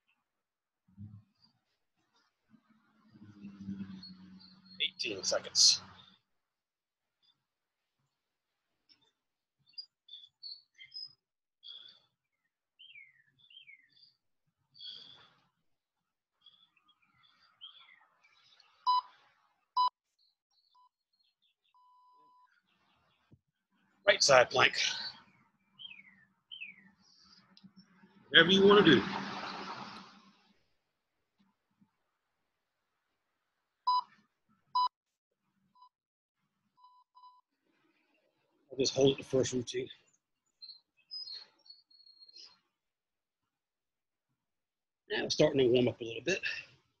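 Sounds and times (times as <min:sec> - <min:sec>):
birds chirping: 0:01.0 - 0:06.3, 0:08.9 - 0:15.5, 0:16.4 - 0:19.1, 0:20.1 - 0:30.3, 0:36.8 - 0:42.7.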